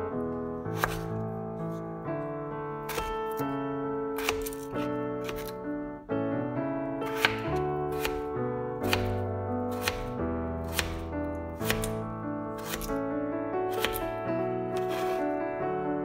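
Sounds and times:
background piano music: 0.0s - 16.0s
knife slicing potato on wooden board: 0.7s - 1.1s, 2.9s - 3.4s, 4.2s - 5.6s, 7.0s - 12.0s, 12.6s - 13.0s, 13.7s - 14.1s, 14.7s - 15.3s.

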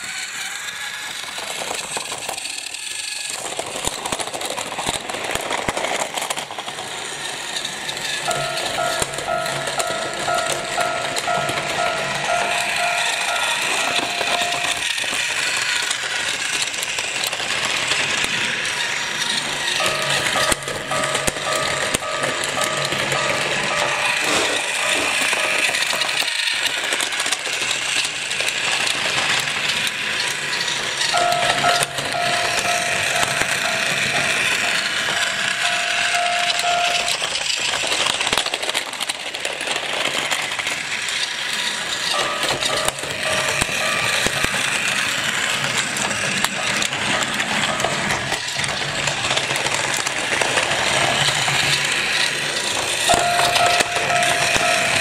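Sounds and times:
toy train motor whirring: 0.0s - 55.0s
wheels rattling on plastic track: 0.0s - 55.0s
electronic warning tone: 8.3s - 15.0s, 19.8s - 26.3s, 31.1s - 37.3s, 42.1s - 44.7s, 53.1s - 55.0s.

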